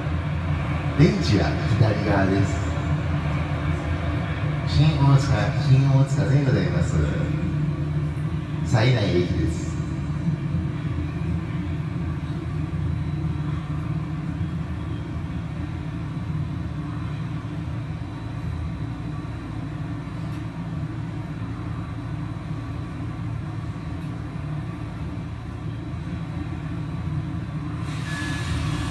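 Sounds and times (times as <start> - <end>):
train rumble over speakers: 0.0 - 28.9.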